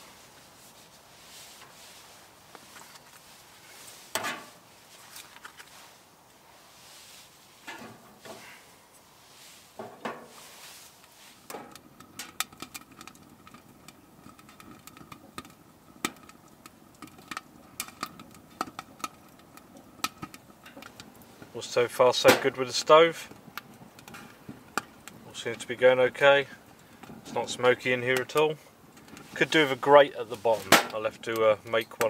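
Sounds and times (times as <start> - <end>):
burning wood crackling and popping: 0.0 - 32.0
kindling knocks and rustles: 6.8 - 8.6, 9.4 - 21.5.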